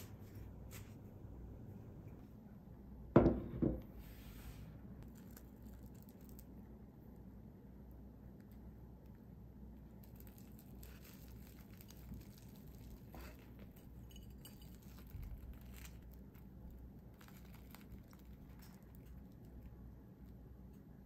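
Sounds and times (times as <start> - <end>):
crisp fried bread crackling: 5.0 - 6.6, 9.9 - 20.4.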